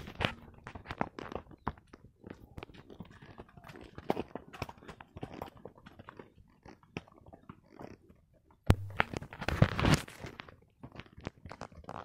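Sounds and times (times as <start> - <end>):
horse hooves on rocky trail: 0.0 - 12.0.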